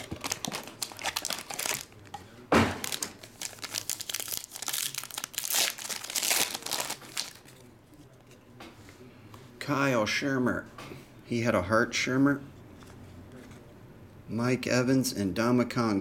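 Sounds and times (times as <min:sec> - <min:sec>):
foil wrapper crinkling: 0:00.0 - 0:02.2, 0:02.8 - 0:07.5.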